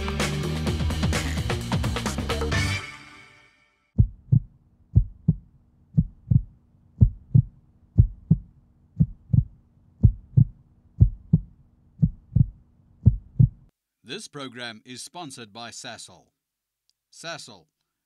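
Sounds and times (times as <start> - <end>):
heartbeat thumps: 4.0 - 13.7.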